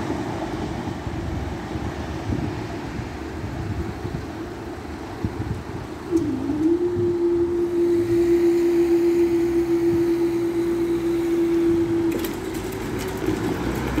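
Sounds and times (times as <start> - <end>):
barrier machine humming: 6.0 - 14.0.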